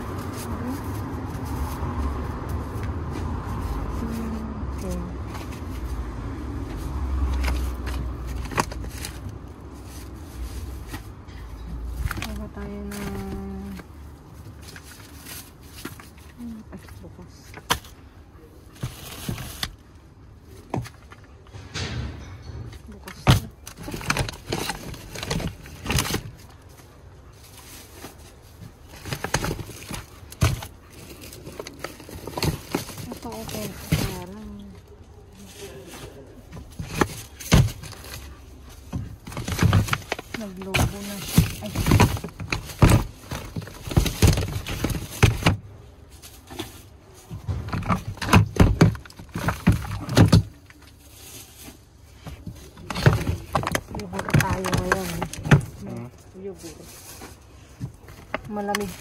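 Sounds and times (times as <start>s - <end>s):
plastic bags rustling: 0.0s - 21.4s, 22.7s - 59.0s
plastic containers knocking: 52.3s - 55.8s.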